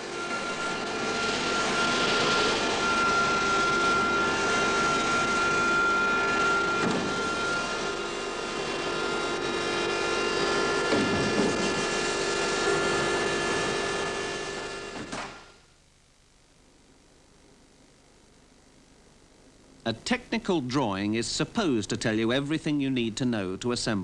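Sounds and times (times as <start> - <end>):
jet engine whine: 0.0 - 15.6.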